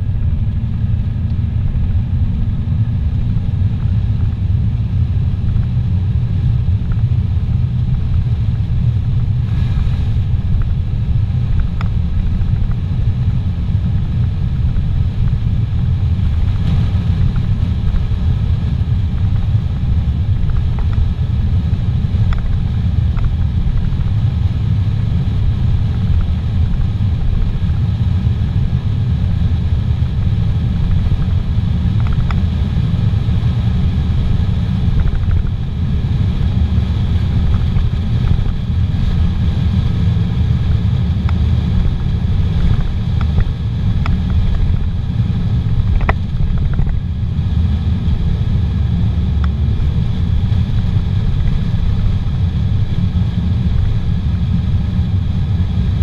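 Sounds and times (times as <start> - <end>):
car engine and tyre road noise: 0.0 - 56.0.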